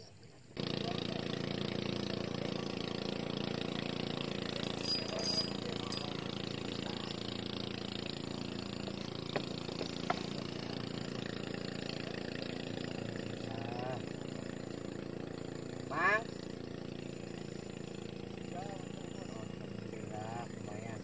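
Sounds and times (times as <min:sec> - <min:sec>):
engine running steadily: 0:00.0 - 0:21.0.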